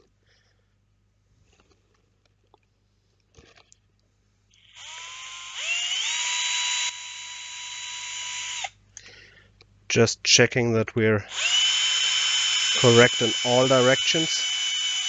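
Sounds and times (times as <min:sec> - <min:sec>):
electric drill whining: 0:04.6 - 0:08.8, 0:11.3 - 0:15.0.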